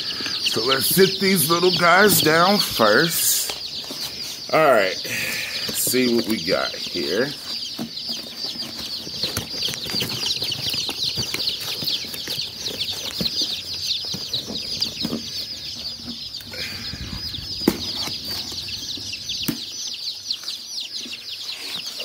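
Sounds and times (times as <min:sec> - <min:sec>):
baby chicks peeping: 0:00.0 - 0:22.0.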